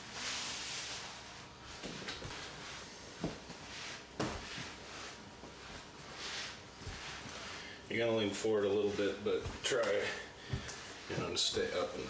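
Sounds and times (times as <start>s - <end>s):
footsteps on indoor floor: 1.6s - 7.6s, 8.4s - 12.0s.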